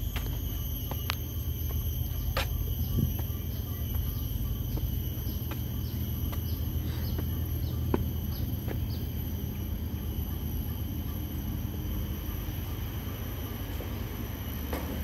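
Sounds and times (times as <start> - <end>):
footsteps on concrete steps: 0.0 - 9.2
insects trilling: 0.0 - 15.0
steady low hum: 0.0 - 15.0.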